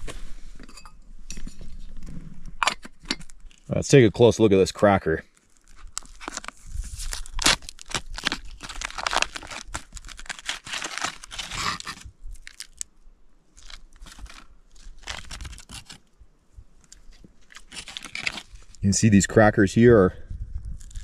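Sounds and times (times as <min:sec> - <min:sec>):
foil pouch crinkling: 0:05.3 - 0:16.1, 0:16.8 - 0:18.8, 0:20.7 - 0:21.0.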